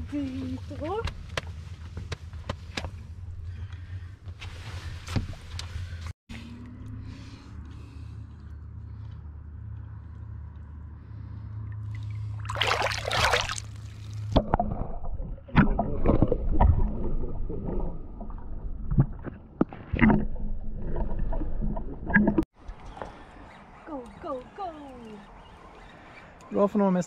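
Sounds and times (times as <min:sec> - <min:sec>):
light water noise: 0:11.6 - 0:23.8
splash into water: 0:11.9 - 0:20.3.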